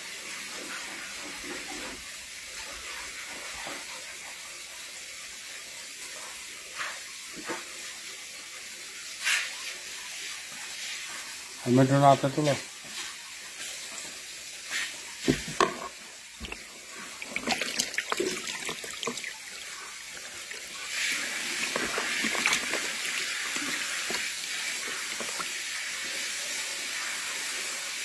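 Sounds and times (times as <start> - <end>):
water splashing in a tub: 11.9 - 28.0
running water rushing: 13.9 - 27.6.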